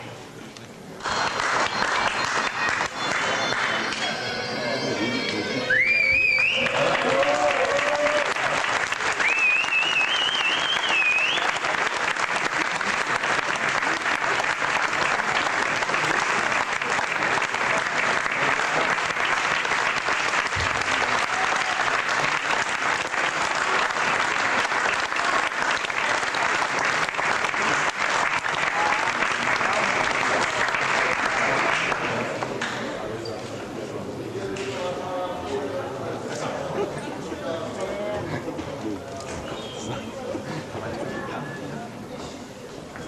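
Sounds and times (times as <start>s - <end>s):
audience applauding: 1.0s - 4.4s, 5.2s - 32.6s.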